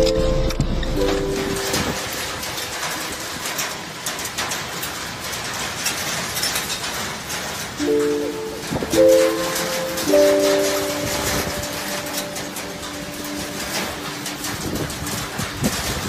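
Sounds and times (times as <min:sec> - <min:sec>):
background music: 0:00.0 - 0:02.7, 0:07.8 - 0:15.6
hail pelting down: 0:00.0 - 0:16.0
rain hissing: 0:00.0 - 0:16.0.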